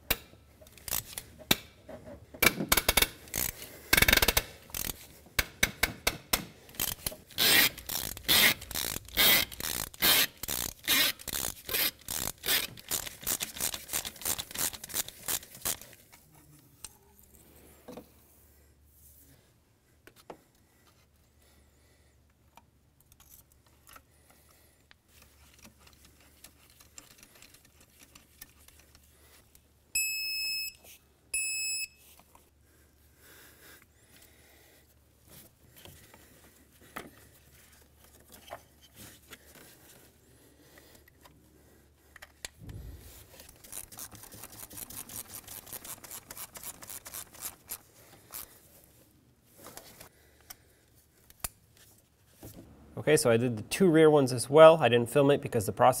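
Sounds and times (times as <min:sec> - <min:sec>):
ratchet clicking rapidly: 0:06.8 - 0:15.8
low thump: 0:42.6 - 0:43.3.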